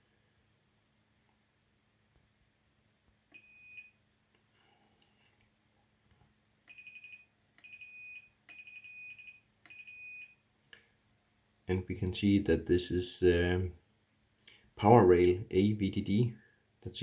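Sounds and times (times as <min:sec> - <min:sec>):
multimeter continuity beeps: 0:03.3 - 0:04.0, 0:06.7 - 0:10.4.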